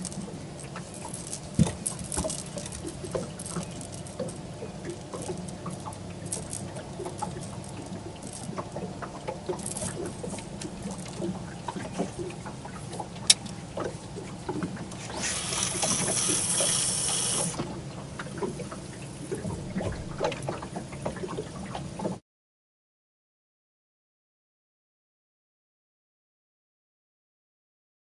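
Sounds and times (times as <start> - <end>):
fishing reel whirring: 0.0 - 13.6, 14.8 - 17.7
water lapping against boat hull: 0.0 - 22.2.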